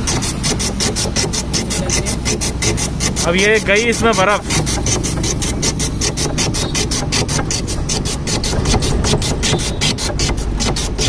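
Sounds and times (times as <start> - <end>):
ice rasping across blade: 0.0 - 11.0
steady low hum: 0.0 - 11.0.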